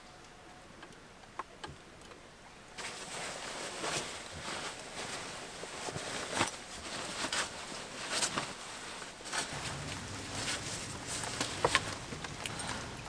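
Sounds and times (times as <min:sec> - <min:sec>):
rain hissing: 0:09.5 - 0:13.0.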